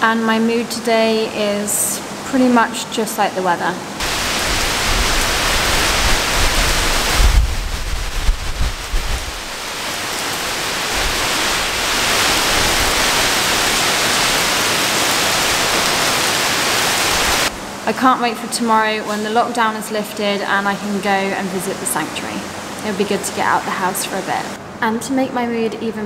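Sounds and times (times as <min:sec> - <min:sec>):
heavy rain downpour: 0:00.0 - 0:24.6
low gusty rumble: 0:04.0 - 0:14.6
strong wind: 0:04.0 - 0:17.9.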